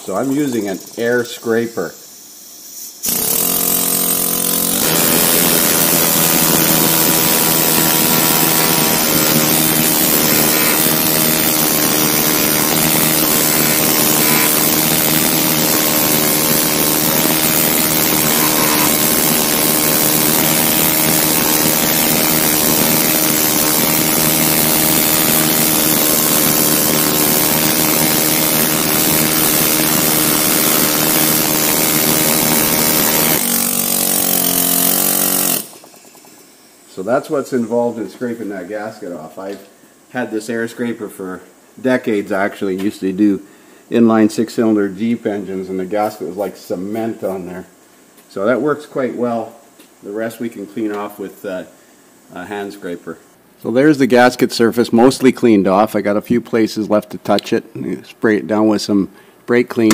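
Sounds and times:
pneumatic air scraper scraping metal: 2.6s - 36.7s.

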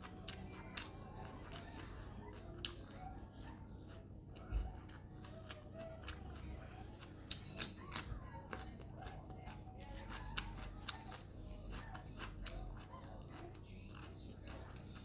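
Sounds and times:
crispy food being chewed: 0.0s - 15.0s.

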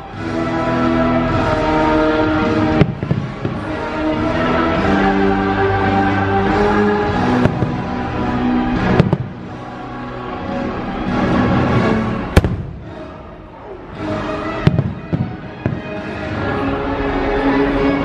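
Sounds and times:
show music: 0.0s - 18.0s
fireworks bursting with bangs: 2.2s - 4.3s, 7.0s - 9.6s, 12.3s - 13.1s, 14.5s - 16.4s.

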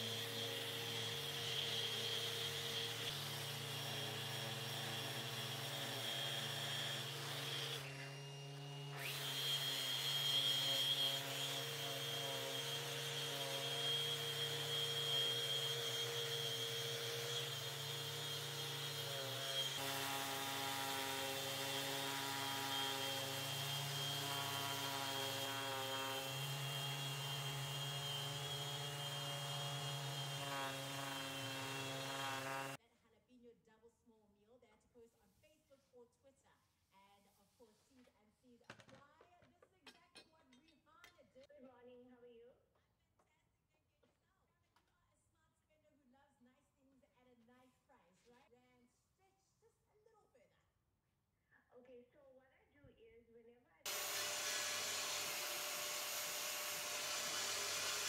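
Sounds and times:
orbital sander running: 0.0s - 32.8s, 53.9s - 58.0s.

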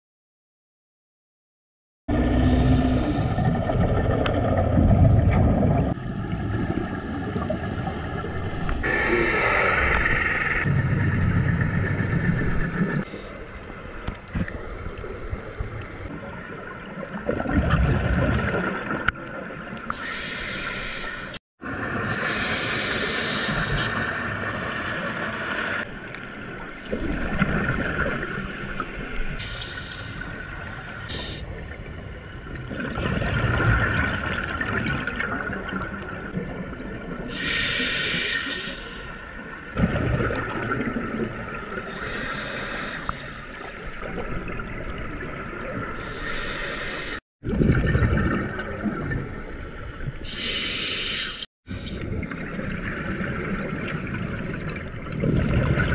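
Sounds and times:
regulator inhalation hissing: 20.0s - 21.4s, 22.2s - 24.0s, 29.4s - 31.4s, 37.3s - 39.1s, 41.9s - 43.6s, 46.0s - 47.2s, 50.3s - 51.5s.

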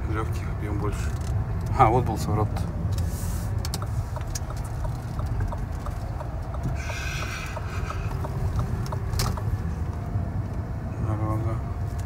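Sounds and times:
turn signal ticking: 0.0s - 10.8s
car driving rumble: 0.0s - 12.0s.

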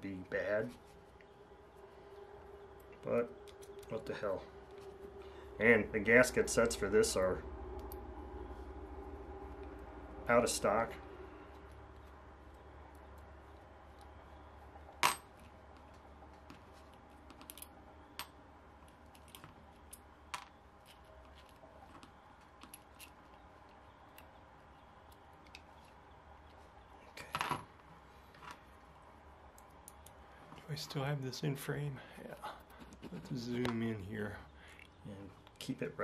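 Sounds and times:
small metallic clicks and ticks: 29.5s - 30.2s.

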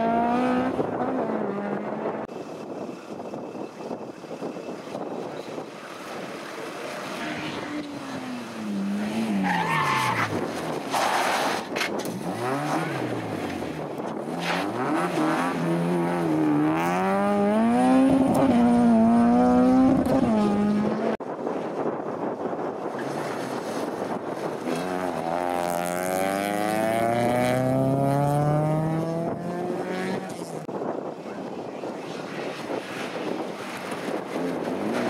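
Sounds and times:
race car engine revving: 14.3s - 21.2s, 24.6s - 30.6s.

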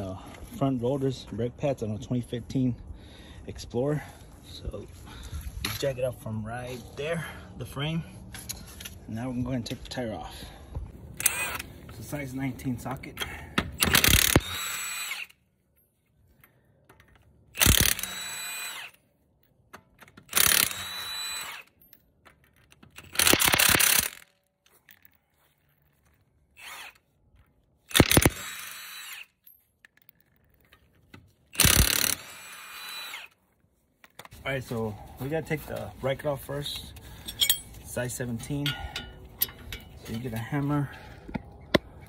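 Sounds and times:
lug nut whirring off: 13.7s - 15.4s, 17.0s - 19.0s, 19.8s - 21.8s, 27.9s - 29.3s, 31.6s - 33.3s
impact wrench hammering: 27.9s - 28.7s, 31.6s - 32.3s.

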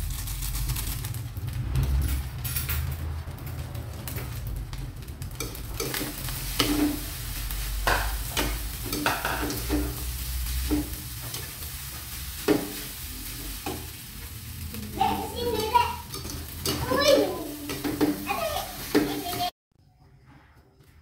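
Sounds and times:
rice sizzling: 0.0s - 19.5s
spatula scraping a wok: 5.4s - 19.5s.

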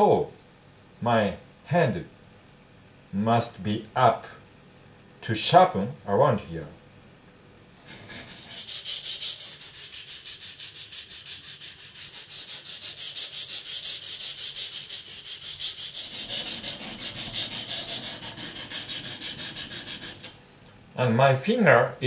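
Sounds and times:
knife scraping on a whetstone: 7.9s - 20.4s.

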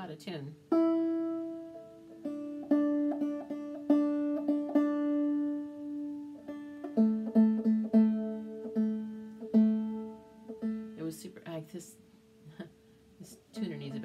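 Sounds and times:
banjo picked note by note: 0.7s - 11.0s.

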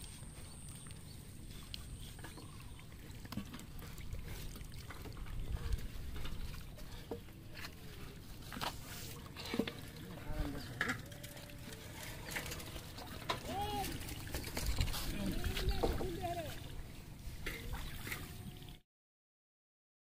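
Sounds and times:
water splashing and dripping: 0.0s - 7.1s, 7.7s - 18.8s.

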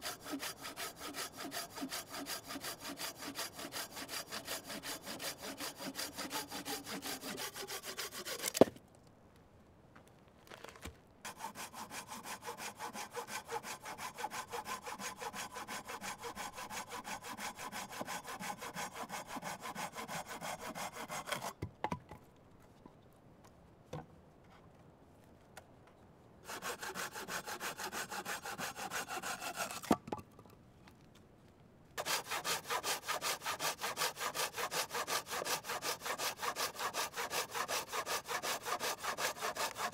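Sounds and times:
knife scraping bark off log: 0.3s - 8.7s.

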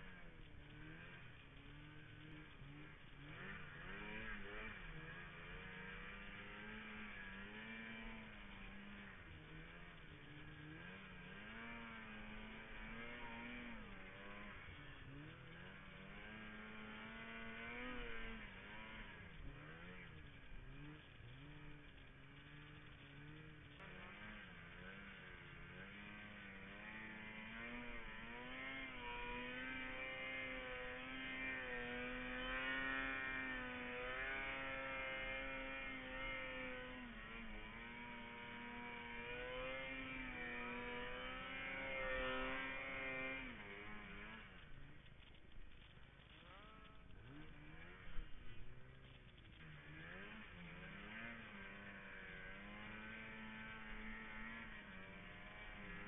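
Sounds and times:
snowmobile engine revving: 0.0s - 56.0s.

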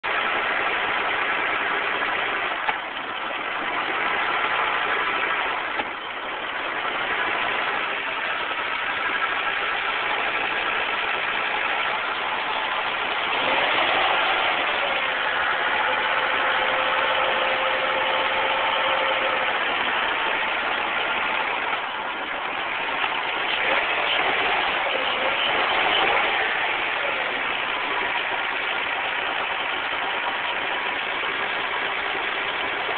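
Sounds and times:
engine idling: 0.0s - 32.9s.

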